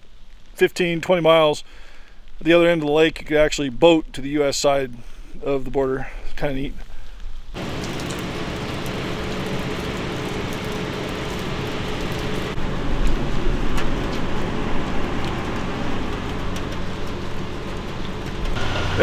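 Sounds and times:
low mechanical hum: 7.6s - 19.0s.

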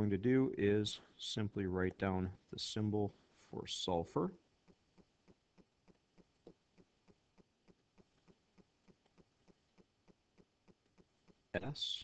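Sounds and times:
faint ticking: 4.4s - 12.0s.

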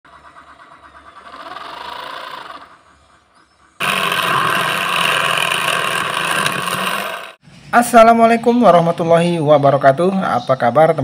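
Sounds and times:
saw blade cutting sheet: 3.8s - 7.4s
small electric saw running: 3.8s - 7.4s.

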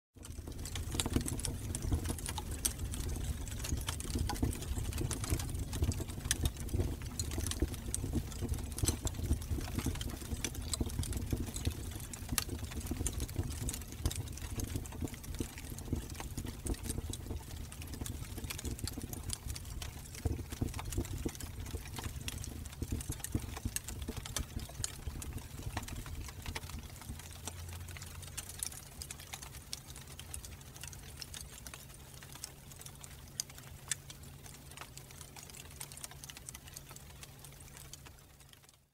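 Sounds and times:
fire roaring: 0.2s - 29.0s
fire crackling and popping: 0.2s - 38.9s.

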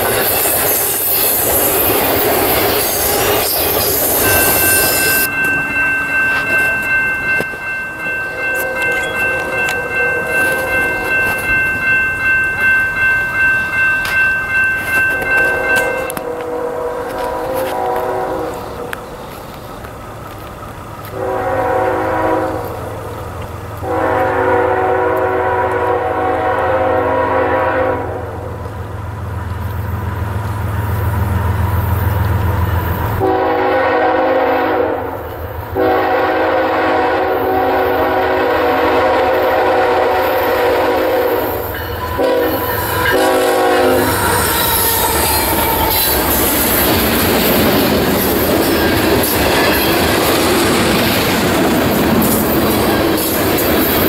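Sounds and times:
train wheels on rails: 0.0s - 54.0s
locomotive air horn blasts: 15.3s - 19.0s, 21.1s - 22.8s, 23.8s - 28.5s, 33.2s - 35.2s, 35.8s - 46.6s.

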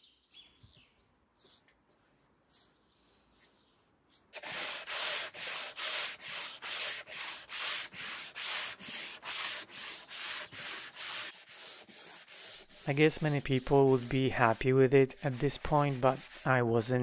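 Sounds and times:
sandpaper rubbing on wood: 4.2s - 16.7s.

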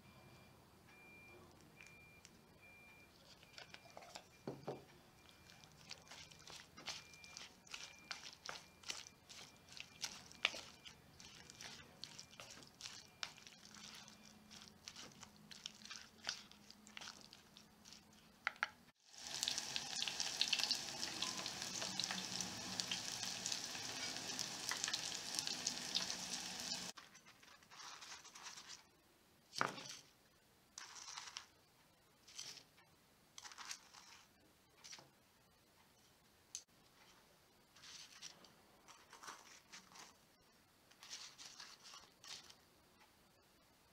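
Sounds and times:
stirring in a bowl with clicks: 1.6s - 18.8s, 40.9s - 42.6s
food deep-frying in oil: 19.0s - 27.0s.

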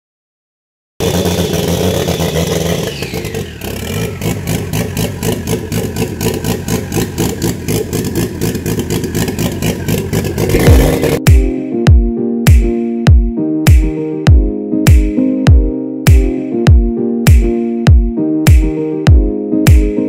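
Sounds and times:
engine revving then idling: 1.0s - 11.2s.

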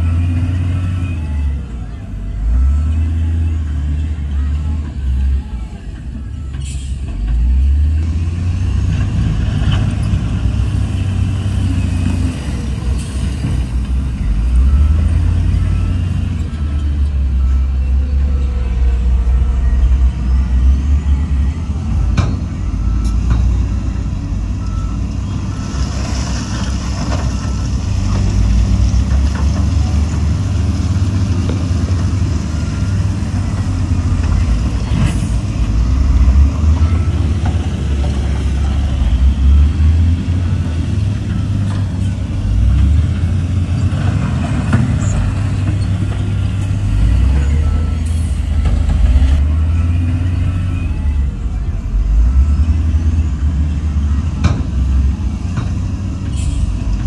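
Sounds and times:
heavy diesel engines rumbling: 0.0s - 57.0s
reversing beeper: 14.1s - 28.5s, 29.7s - 42.8s, 46.7s - 56.7s.

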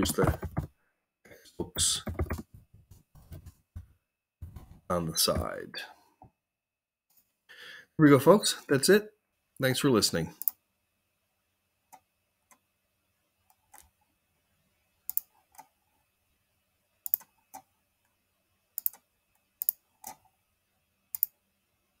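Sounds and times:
computer mouse clicking: 15.1s - 15.7s, 17.0s - 17.7s, 18.8s - 20.3s, 21.1s - 21.4s.

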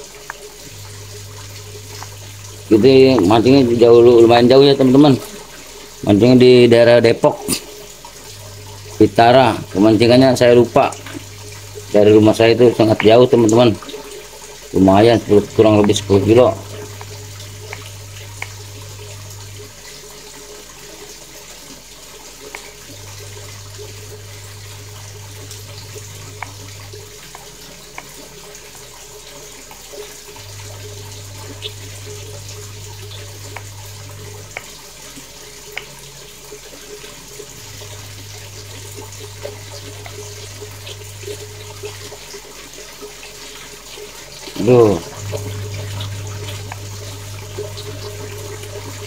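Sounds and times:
low hum: 0.0s - 6.6s, 30.3s - 42.5s, 44.5s - 49.0s.

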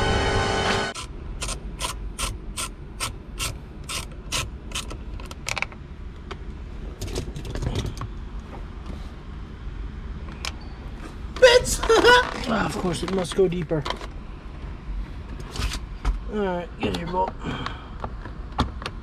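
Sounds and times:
hand ratchet clicking: 1.0s - 4.9s.

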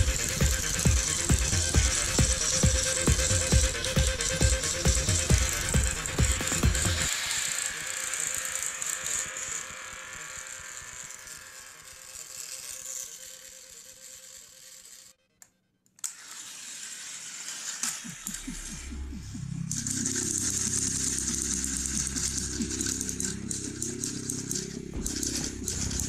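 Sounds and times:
rattle of wheels and gears: 0.0s - 9.5s, 19.7s - 26.0s
toy train motor whirring: 0.0s - 15.2s, 15.9s - 26.0s.

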